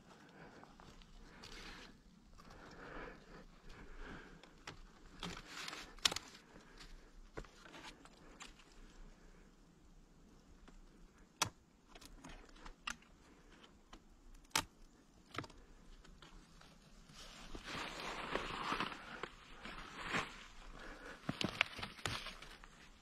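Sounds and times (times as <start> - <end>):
rustling: 0.0 - 9.5, 14.9 - 23.0.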